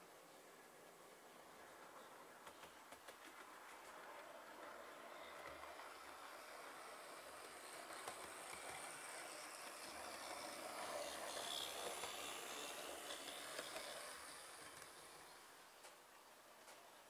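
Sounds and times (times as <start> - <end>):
wheels clicking: 3.5 - 16.0
model train motor hum: 4.0 - 16.0.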